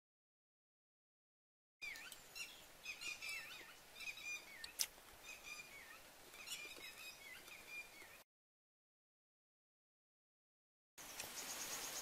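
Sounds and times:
songbird singing: 1.8 - 8.2, 11.0 - 12.0.

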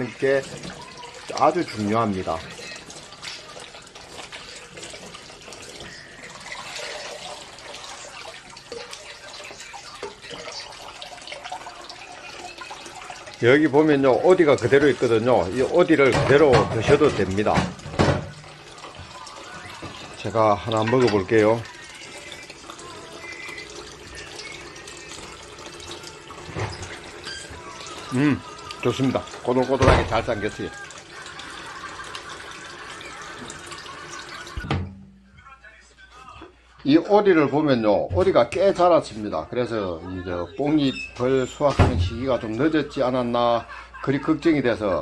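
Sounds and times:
splashing and dripping: 0.0 - 34.9
tap running into basin: 0.0 - 35.2.

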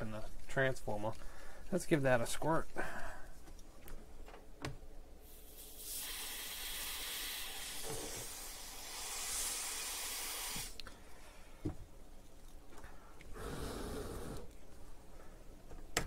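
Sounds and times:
aerosol spray hissing: 5.2 - 10.8.

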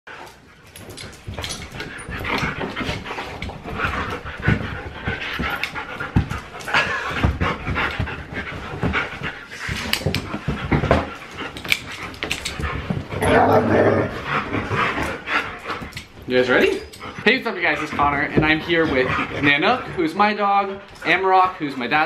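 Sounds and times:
dogs panting: 0.1 - 22.0
paws scuffling and thumping: 0.1 - 22.0.

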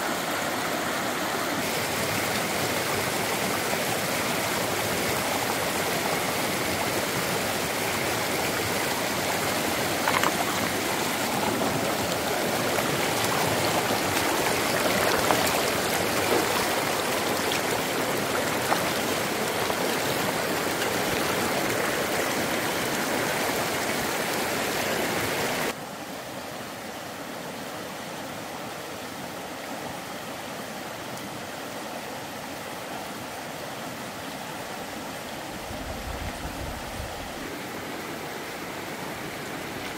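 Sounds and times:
running water flowing: 0.0 - 25.8.

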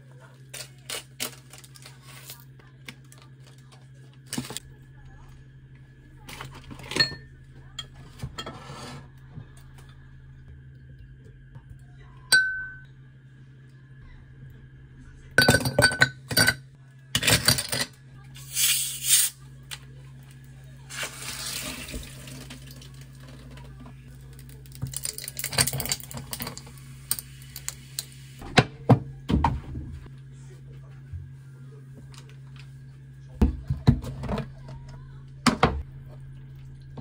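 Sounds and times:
low appliance hum: 0.0 - 37.0
dishes and utensils clattering: 6.3 - 9.1, 15.4 - 18.0
running tap water: 20.9 - 23.5.

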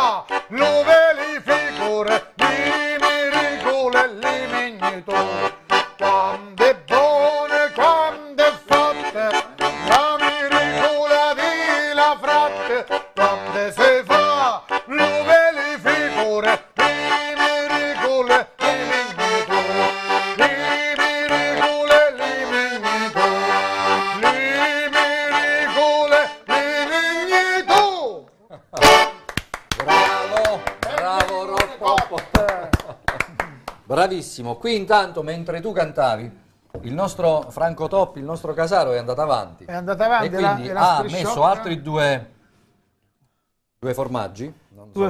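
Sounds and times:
button accordion waltz: 0.0 - 28.0, 28.8 - 31.6
person singing: 0.0 - 28.2.

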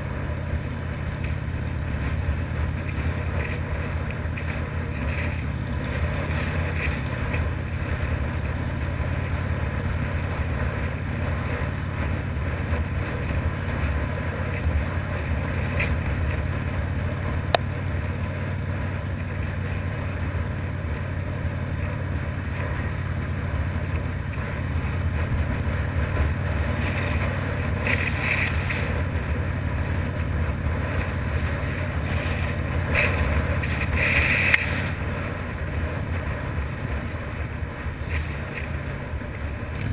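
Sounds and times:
motorcycle engine cruising: 0.0 - 39.9
wind noise on microphone: 39.2 - 39.9.

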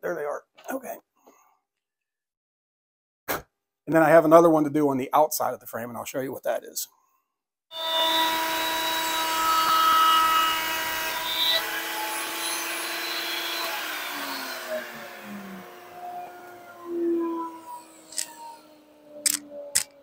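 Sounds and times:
router running at high pitch: 7.7 - 20.0
dust extraction vacuum: 7.8 - 19.8
router winding down: 7.8 - 20.0.

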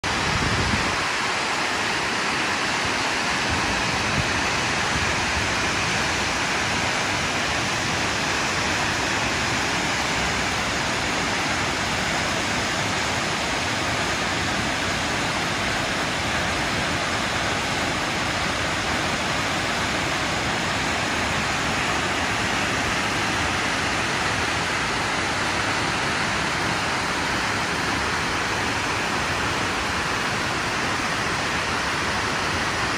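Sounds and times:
waterfall rushing: 0.0 - 32.9.

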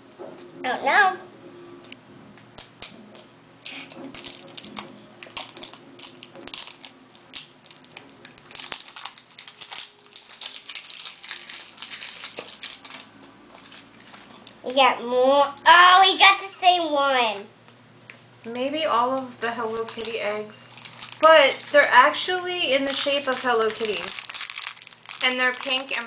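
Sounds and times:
packaging crinkling: 3.6 - 14.6, 19.6 - 26.0.

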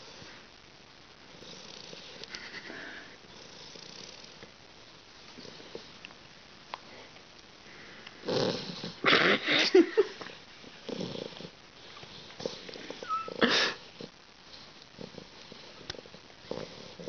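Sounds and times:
puppy snoring: 1.3 - 4.4, 8.2 - 9.4, 10.8 - 17.0.

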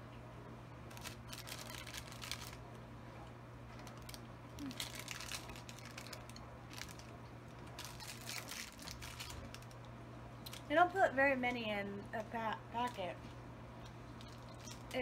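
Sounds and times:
steady low hum: 0.0 - 15.0
plastic snack packet crinkling: 0.9 - 2.6, 3.7 - 10.8, 12.2 - 13.2, 13.9 - 15.0.

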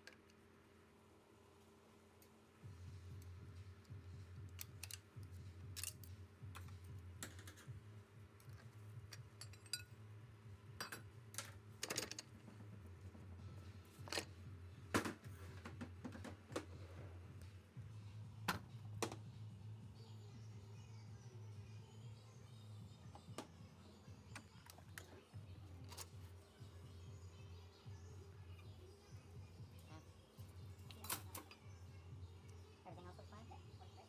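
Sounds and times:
low steady hum: 0.0 - 34.0
metallic clicks and taps of tool: 3.2 - 6.8.

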